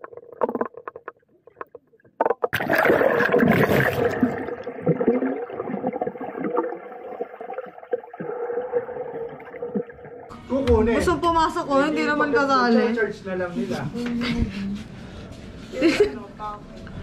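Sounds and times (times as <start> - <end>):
splashing and bubbles underwater: 0.0 - 10.3.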